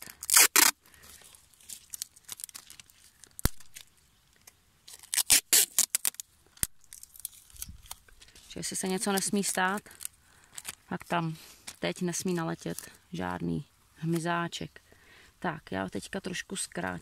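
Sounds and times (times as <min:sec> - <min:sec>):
adhesive tape ripping off roll: 0:00.0 - 0:08.4
tape crinkling and crackling: 0:00.0 - 0:13.4.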